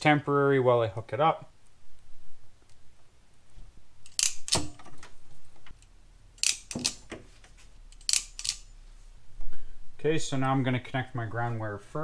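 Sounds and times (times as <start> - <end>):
wiring tool clicking: 4.0 - 5.1, 5.7 - 7.2, 7.8 - 8.7.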